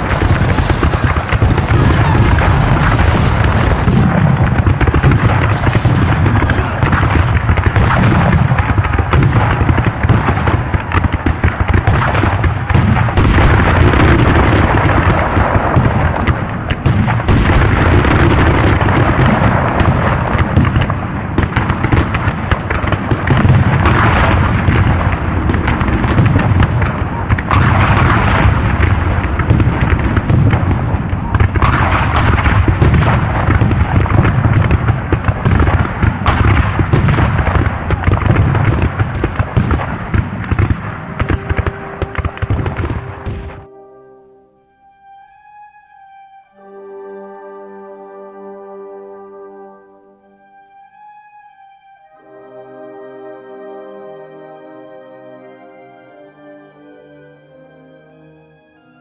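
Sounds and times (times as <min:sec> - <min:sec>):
deep cannon booms: 0:00.0 - 0:43.6
dense gunfire: 0:00.0 - 0:43.7.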